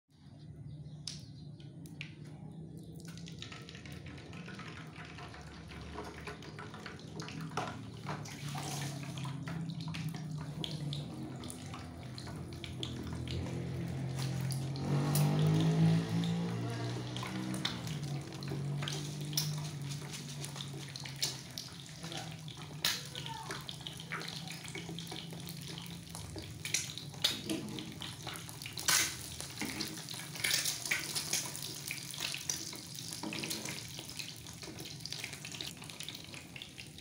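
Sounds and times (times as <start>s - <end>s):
egg sizzling in frying pan: 23.7s - 37.0s.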